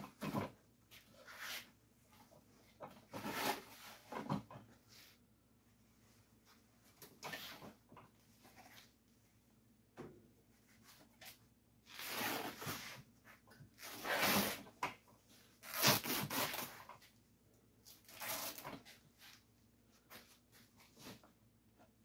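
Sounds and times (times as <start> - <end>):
burlap and stuffing tearing: 15.6 - 16.8, 18.0 - 18.8.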